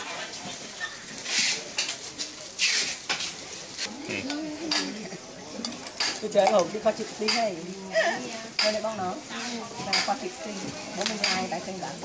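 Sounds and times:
utensils and dishes clinking: 4.2 - 10.4, 11.0 - 11.8.

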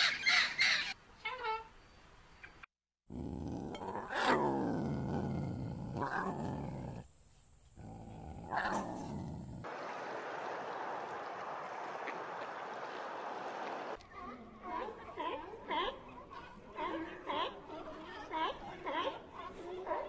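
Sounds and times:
lion roaring: 3.1 - 7.1, 7.8 - 9.7.

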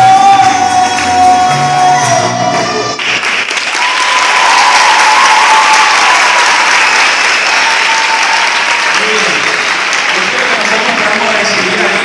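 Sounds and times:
audience applauding: 2.6 - 12.0.

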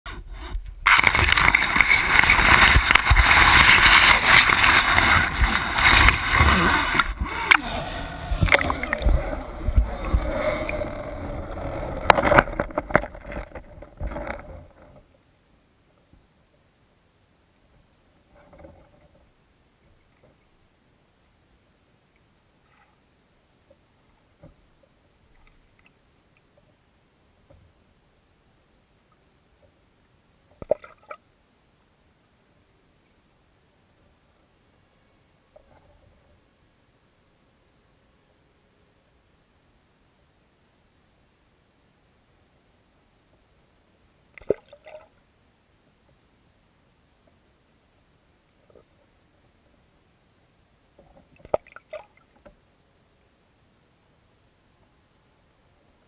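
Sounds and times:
rustling through plants: 0.1 - 15.0
faint underwater clicks: 0.1 - 15.1, 23.6 - 26.8, 44.3 - 45.2.

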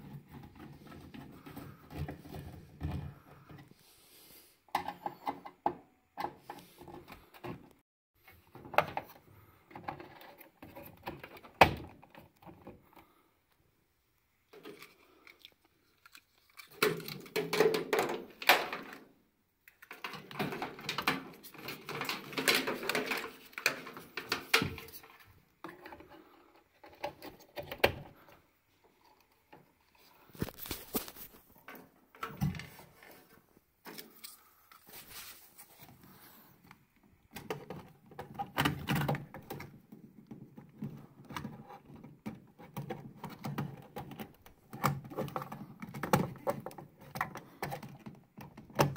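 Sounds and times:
cables and plug connectors rattling: 14.5 - 28.4, 29.0 - 48.9.

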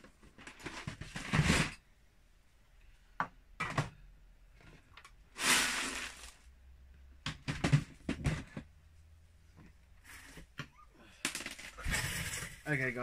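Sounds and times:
plastic knocks and clatters: 3.2 - 4.0, 7.2 - 8.8.

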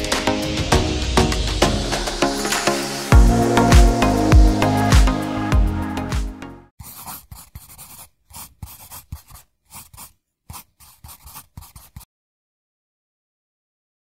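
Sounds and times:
background music: 0.0 - 6.7
short irregular scratching: 6.8 - 12.1.

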